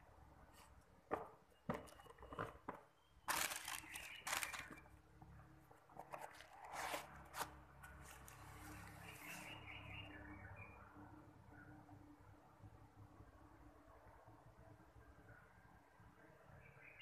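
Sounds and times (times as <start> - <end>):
tissue paper rustling and crinkling: 3.3 - 4.8.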